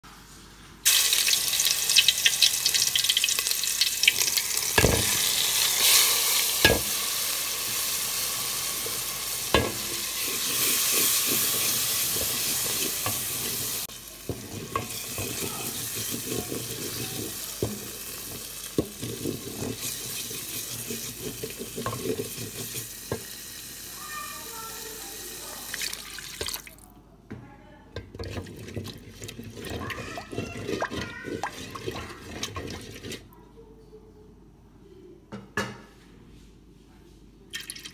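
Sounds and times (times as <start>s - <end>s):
paste sizzling in hot oil: 0.8s - 26.6s, 28.3s - 33.2s
spatula scraping and stirring: 7.6s - 23.3s, 28.0s - 33.4s.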